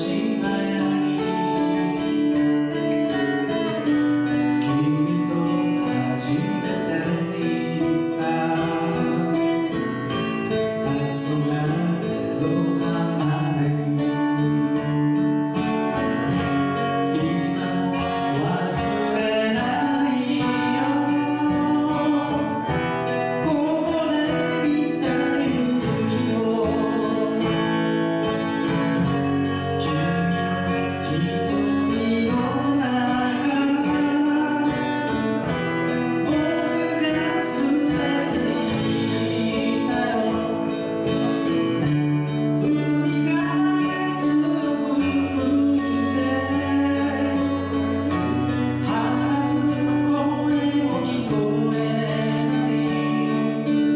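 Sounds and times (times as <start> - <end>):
acoustic guitars strumming: 0.0 - 53.9
man singing: 0.0 - 53.9.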